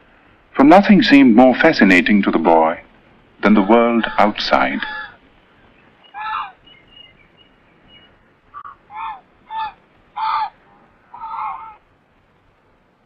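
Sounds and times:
ducks quacking: 3.4s - 5.2s, 6.0s - 6.6s, 8.5s - 11.8s.

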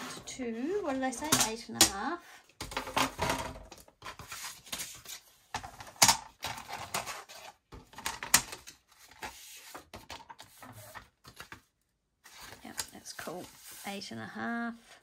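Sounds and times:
paper rustling and sliding: 8.5s - 11.6s, 12.2s - 14.3s.

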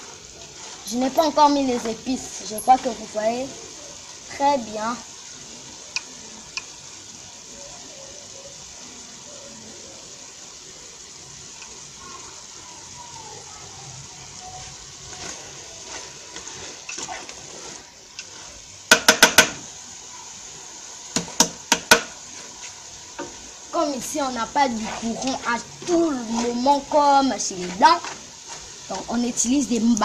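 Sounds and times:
boiling water hissing: 0.0s - 30.0s
utensil knocking on metal pot: 18.9s - 19.6s, 21.2s - 22.1s.

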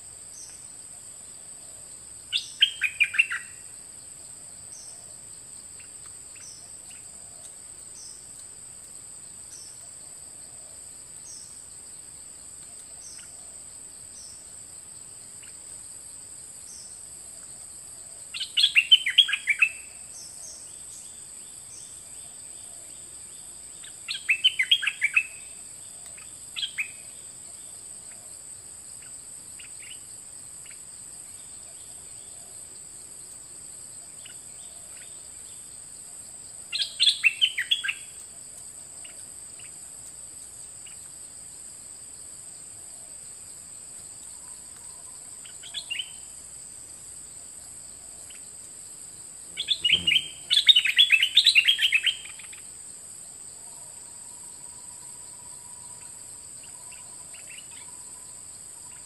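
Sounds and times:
high insect buzz: 11.1s - 59.0s
bulbul singing bright notes: 49.6s - 50.6s.

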